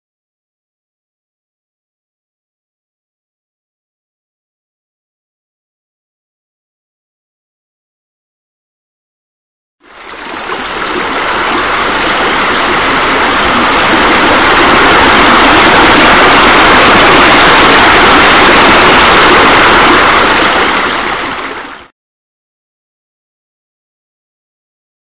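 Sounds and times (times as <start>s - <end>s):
rushing falling water: 9.9s - 21.9s.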